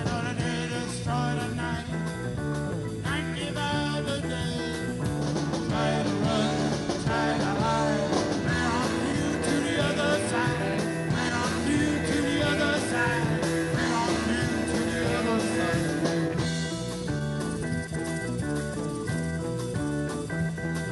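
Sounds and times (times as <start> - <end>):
person singing: 0.0 - 2.1, 5.7 - 16.6
rock band playing: 0.0 - 20.9.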